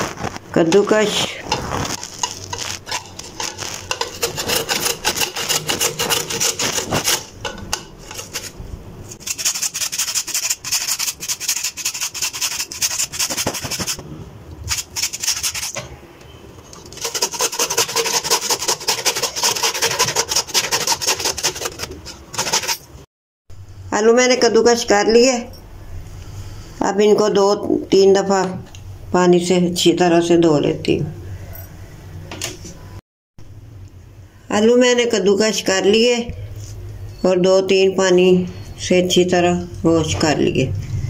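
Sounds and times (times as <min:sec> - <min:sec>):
potato grated on metal grater: 0:01.5 - 0:07.4, 0:08.0 - 0:08.6, 0:09.2 - 0:14.0, 0:14.7 - 0:15.8, 0:16.8 - 0:22.9.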